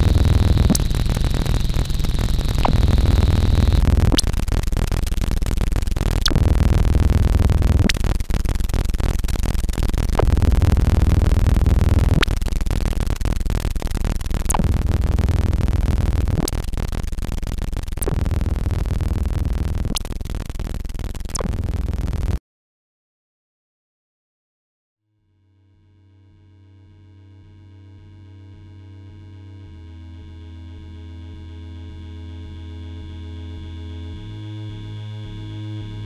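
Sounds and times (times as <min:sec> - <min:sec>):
heavy low electronic rumble: 0:00.0 - 0:22.4.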